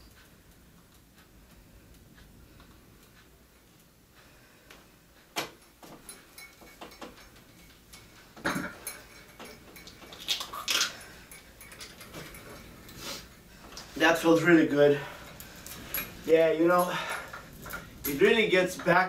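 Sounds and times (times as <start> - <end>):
light clicks and knocks: 4.6 - 14.5.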